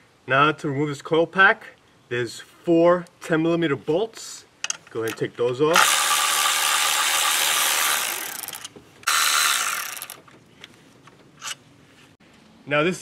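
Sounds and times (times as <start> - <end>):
electric ratchet running: 5.7 - 10.2.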